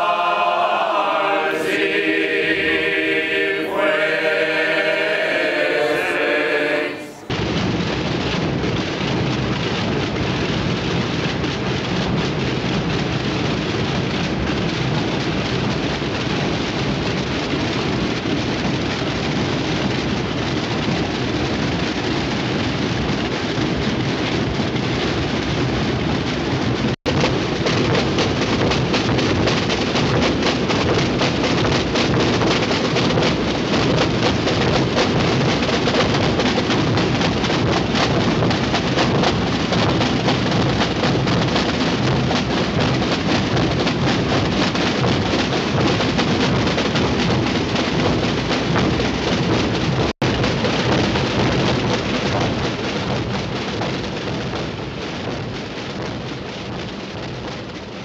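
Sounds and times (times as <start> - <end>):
men singing chant in harmony: 0.0 - 7.2
drums in continuous roll: 0.0 - 58.0.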